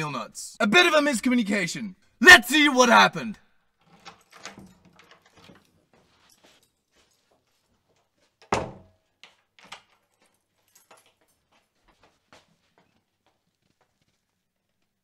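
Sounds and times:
door slamming shut: 8.5 - 8.9
soft footsteps in hallway: 9.0 - 15.0.

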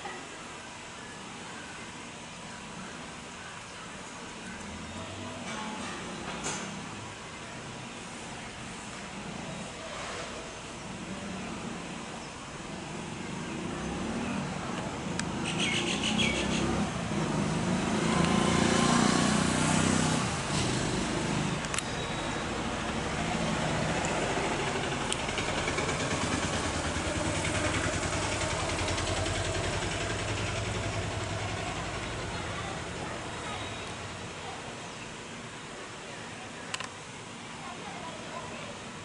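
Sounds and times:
vehicle engine passing: 12.7 - 34.6
bird calls: 15.3 - 16.8.

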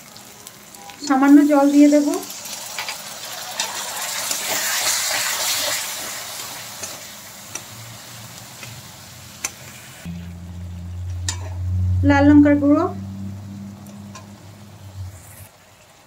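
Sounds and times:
food sizzling in hot oil: 0.0 - 16.0
steady low hum: 10.1 - 15.5
metal spatula tapping pan: 10.9 - 11.7, 13.8 - 14.4.

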